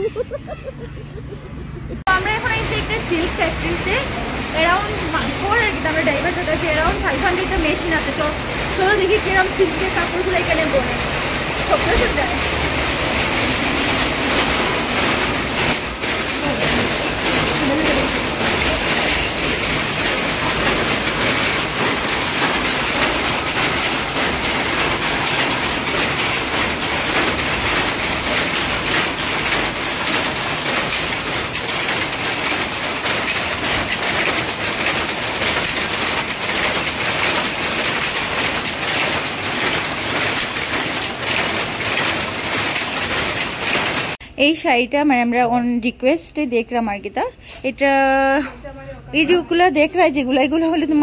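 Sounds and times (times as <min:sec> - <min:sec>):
power looms clattering: 0:01.9 - 0:44.2.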